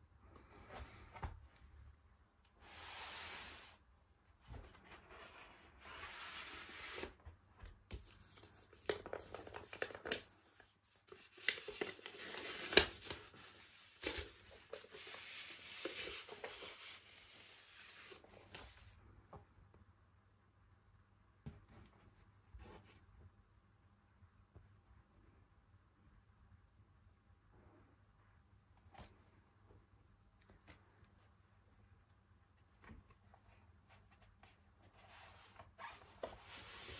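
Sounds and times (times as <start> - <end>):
paper sleeve rustling: 8.2 - 19.0, 33.9 - 36.9.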